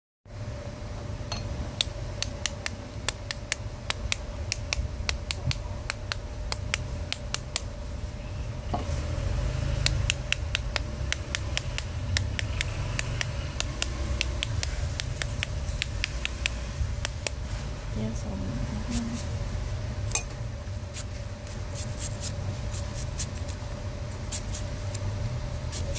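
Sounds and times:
steady low rumble: 0:00.6 - 0:25.9
sharp clicks from squeezed mangoes: 0:01.8 - 0:07.7, 0:09.8 - 0:17.4.

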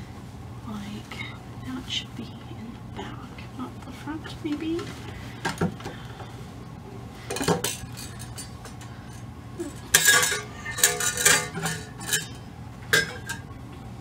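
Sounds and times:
doll clinking on metal stand: 0:09.9 - 0:13.4.

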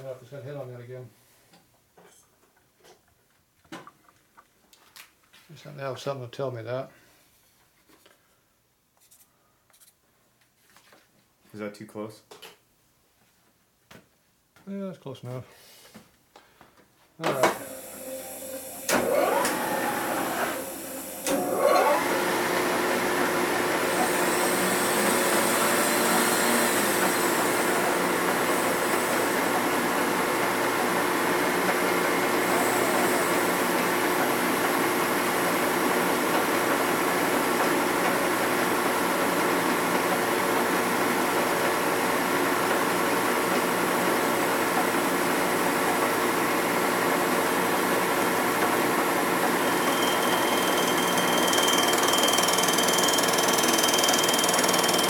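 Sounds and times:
machine cutting metal: 0:17.4 - 0:31.2, 0:32.2 - 0:33.9, 0:49.3 - 0:55.0.

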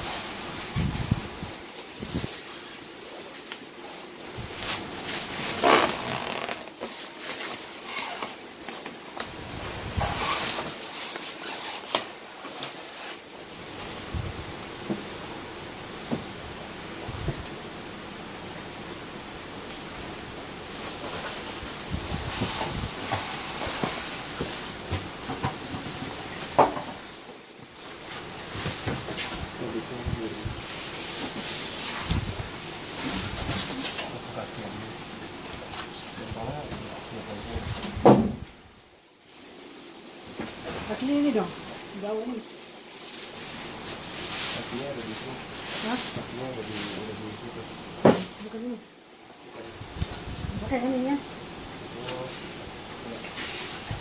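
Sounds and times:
plastic sheeting crinkling: 0:00.0 - 0:15.3, 0:20.7 - 0:34.9, 0:39.2 - 0:47.6
sharp plastic crackle: 0:03.3 - 0:13.2.

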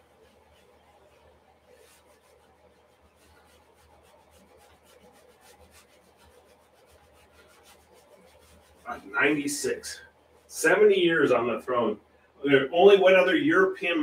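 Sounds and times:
hand rubbing paint on canvas: 0:00.0 - 0:11.6.

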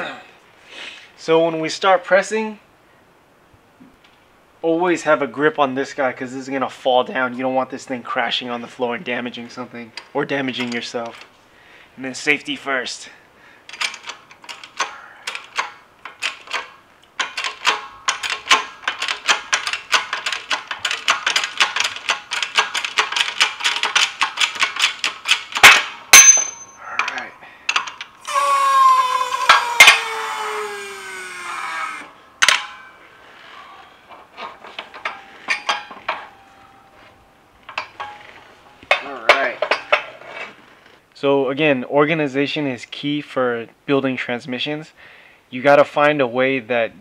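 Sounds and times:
steel parts clinking: 0:13.7 - 0:28.1, 0:34.1 - 0:40.5
metallic ringing: 0:26.1 - 0:26.9, 0:34.8 - 0:40.1.

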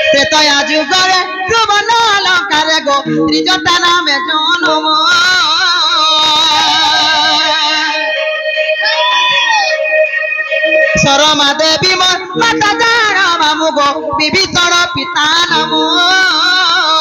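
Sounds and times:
person singing with vibrato: 0:00.0 - 0:17.0
instrumental drone: 0:05.1 - 0:14.2.

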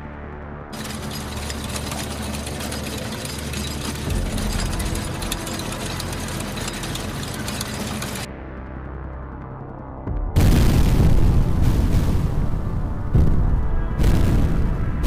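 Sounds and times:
faint background music: 0:00.0 - 0:15.0
rattling engine-like drone: 0:00.7 - 0:08.3.

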